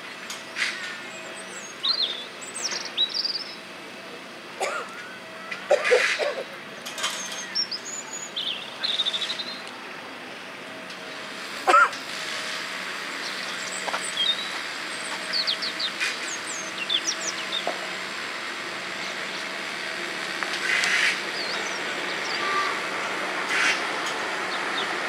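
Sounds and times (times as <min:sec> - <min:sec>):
underground train: 0:00.0 - 0:25.0
small birds chirping: 0:07.2 - 0:09.6, 0:13.2 - 0:17.7, 0:21.3 - 0:22.7.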